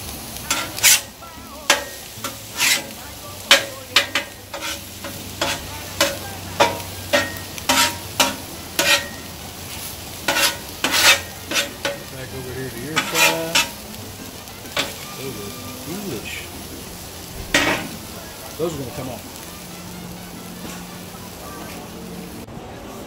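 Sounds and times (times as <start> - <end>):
food sizzling on griddle: 0.0 - 23.0
metal spatulas scraping griddle: 0.4 - 15.3, 17.3 - 18.1.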